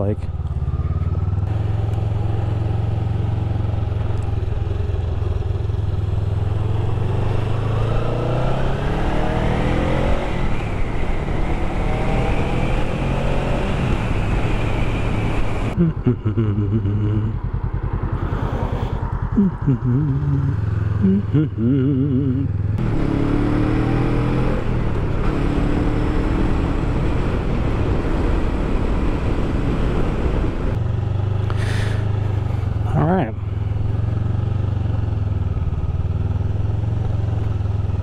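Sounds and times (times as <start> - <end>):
motorcycle engine accelerating: 0.2 - 38.0
wind noise: 24.0 - 30.8.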